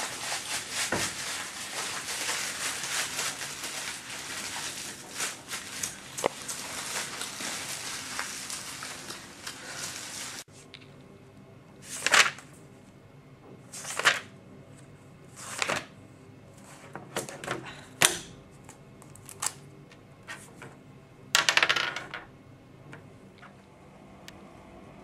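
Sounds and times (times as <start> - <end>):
magazine pages swishing: 0.0 - 10.5
paper crackling rustle: 0.0 - 10.5, 11.9 - 12.5, 13.8 - 14.3.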